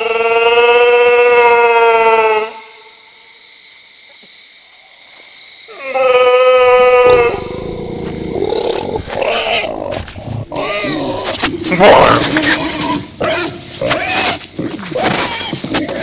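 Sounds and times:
animal howling: 5.7 - 15.6
raspy animal growling: 6.5 - 15.0.

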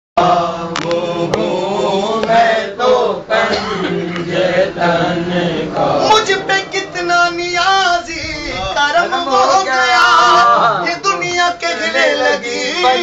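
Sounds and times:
man chanting devotional poem: 2.8 - 13.0.

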